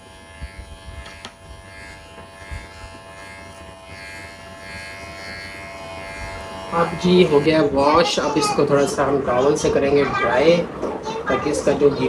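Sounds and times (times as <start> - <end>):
electric pet clipper humming: 0.0 - 12.0.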